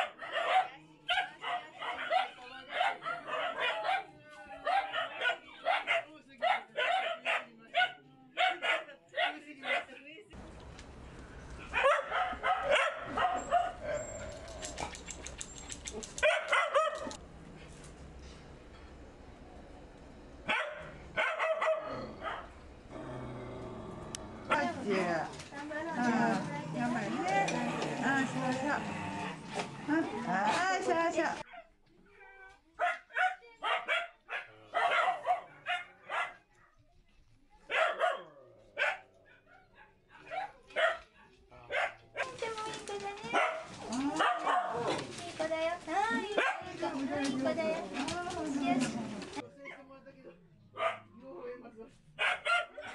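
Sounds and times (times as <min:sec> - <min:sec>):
dogs barking and yelping: 0:00.0 - 0:09.8, 0:11.6 - 0:17.2, 0:20.5 - 0:22.6, 0:43.2 - 0:45.1, 0:46.2 - 0:47.5, 0:52.2 - 0:52.9.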